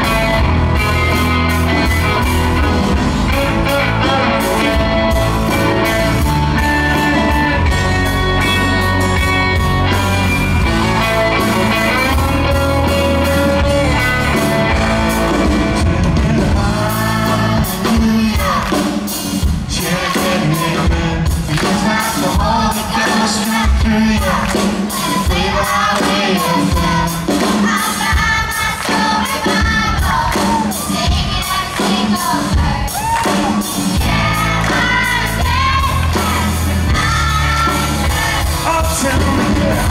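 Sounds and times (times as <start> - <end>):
rock band electric guitars: 0.0 - 39.9
children singing into microphone: 33.9 - 38.6.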